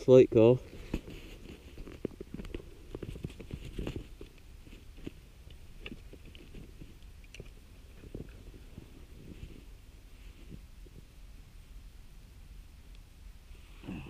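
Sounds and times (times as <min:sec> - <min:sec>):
clothing rustle: 0:00.6 - 0:05.2, 0:07.9 - 0:11.0.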